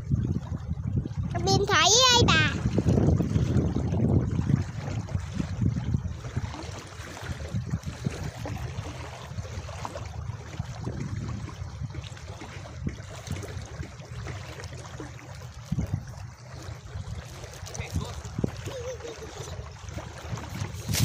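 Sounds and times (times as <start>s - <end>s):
small waves lapping at shore: 0.0s - 21.0s
wind rumbling on microphone: 0.0s - 21.0s
net splashing in shallows: 19.9s - 21.0s.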